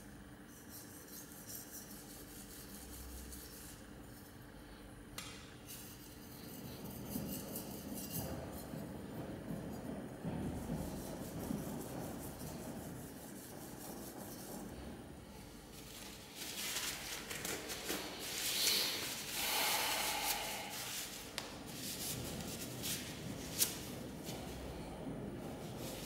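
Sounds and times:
hand rubbing and scraping: 5.2s - 26.0s.

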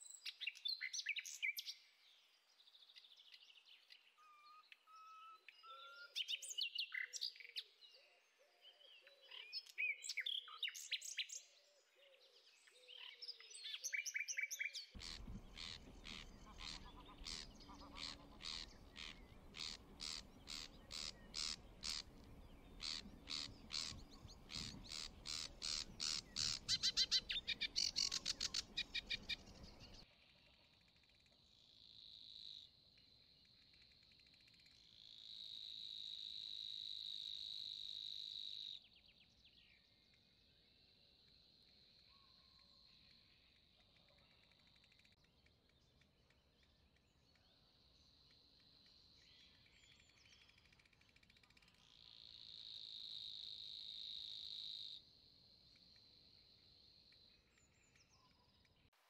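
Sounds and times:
nightingale singing: 12.8s - 30.1s
warbler chattering song: 13.8s - 30.0s.

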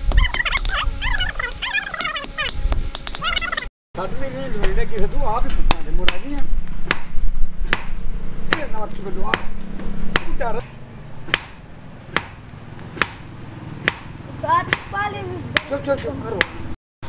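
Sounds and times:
steady low hum: 0.0s - 14.9s
hammer striking metal on anvil: 7.7s - 15.0s.

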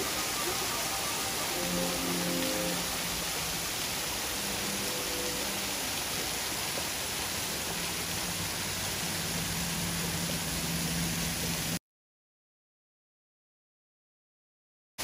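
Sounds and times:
waterfall splashing on rocks: 0.0s - 11.8s.

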